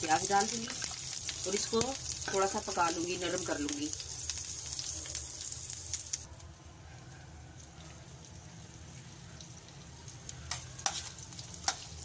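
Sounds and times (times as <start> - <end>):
onions sizzling in a frying pan: 0.0 - 6.3, 7.6 - 12.0.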